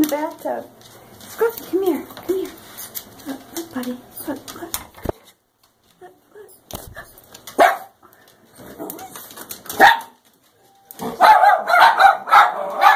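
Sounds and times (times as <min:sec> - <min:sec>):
dog barking: 0:07.6 - 0:08.0, 0:09.8 - 0:10.2, 0:11.0 - 0:12.9.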